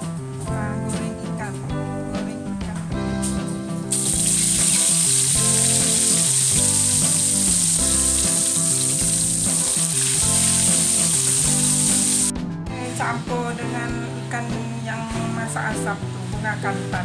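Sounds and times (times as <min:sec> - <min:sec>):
fish frying in hot oil: 0:03.9 - 0:12.3.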